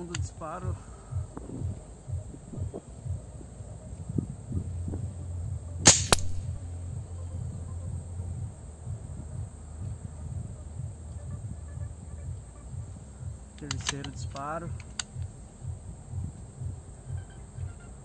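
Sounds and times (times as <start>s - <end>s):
air rifle shot crack: 5.8s - 6.6s.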